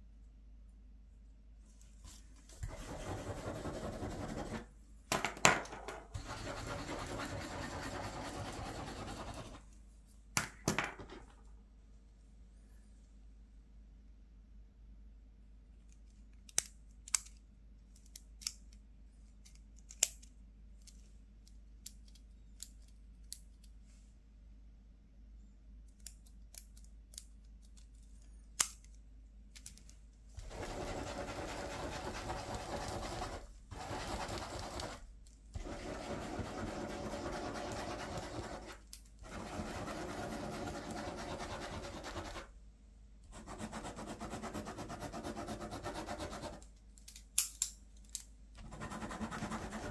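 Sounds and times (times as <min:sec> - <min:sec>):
pen scribbling on paper: 0:02.7 - 0:04.6, 0:06.2 - 0:09.6, 0:30.4 - 0:35.0, 0:35.6 - 0:42.5, 0:43.3 - 0:46.6, 0:48.6 - 0:49.9.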